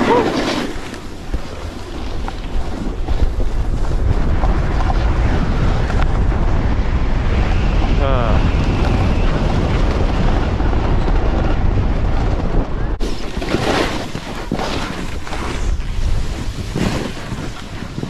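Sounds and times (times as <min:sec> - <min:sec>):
snowboard swishing through powder: 0:00.0 - 0:04.2, 0:13.0 - 0:18.0
snowboard sliding on packed snow: 0:00.0 - 0:06.8, 0:13.0 - 0:18.0
wind rumbling on microphone: 0:00.0 - 0:18.0.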